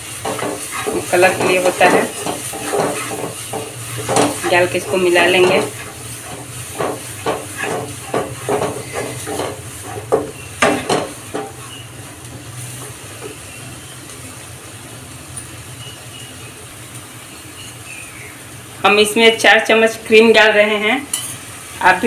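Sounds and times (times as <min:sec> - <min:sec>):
paste sizzling in oil: 0:00.0 - 0:22.0
wooden spatula scraping pan: 0:00.2 - 0:12.0.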